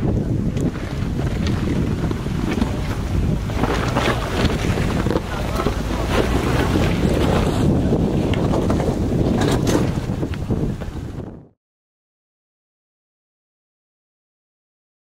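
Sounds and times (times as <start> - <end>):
wind rumble on microphone: 0.0 - 11.6
engine running under load: 0.5 - 9.8
tyres crunching over rocks: 1.3 - 7.5.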